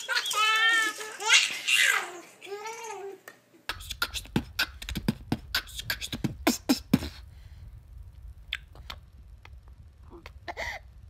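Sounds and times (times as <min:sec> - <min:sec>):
man beatboxing mouth pops and clicks: 0:03.7 - 0:07.2, 0:08.5 - 0:09.0.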